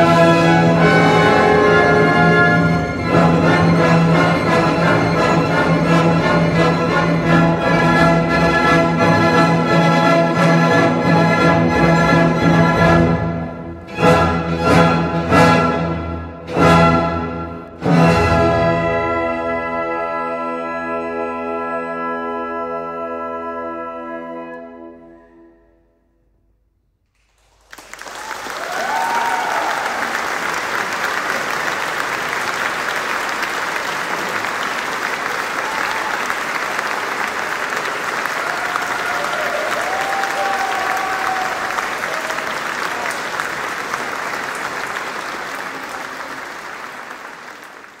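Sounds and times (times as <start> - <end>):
audience applause: 27.2 - 48.0.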